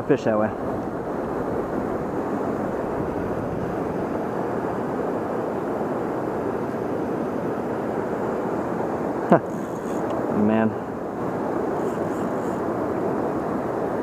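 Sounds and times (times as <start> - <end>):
river water rushing: 0.4 - 6.6.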